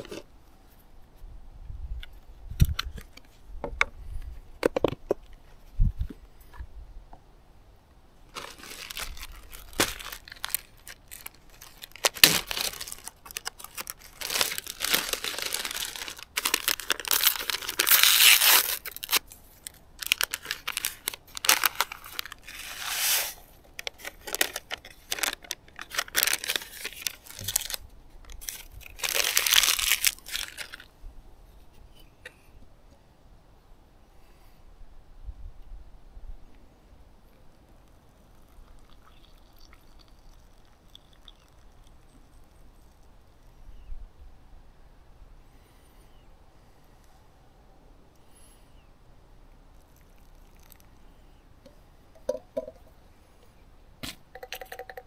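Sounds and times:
paper and plastic crinkling: 8.3 - 30.9.

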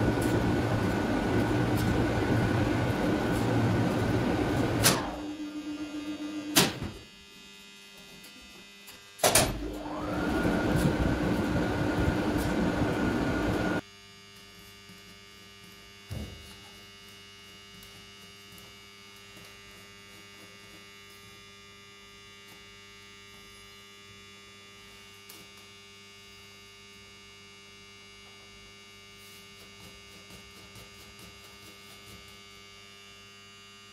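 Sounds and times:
electrical hum: 0.0 - 13.8.

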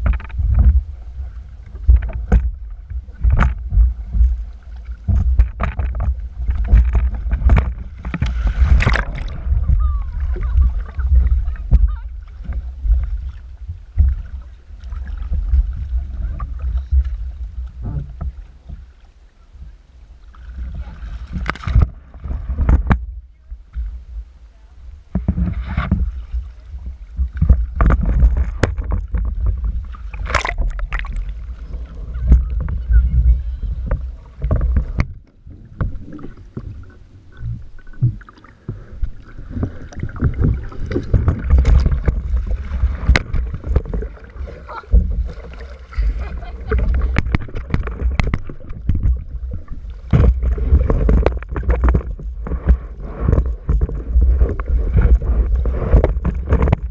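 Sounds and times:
water splashing: 0.0 - 56.9
wind rumbling on microphone: 0.0 - 56.9.

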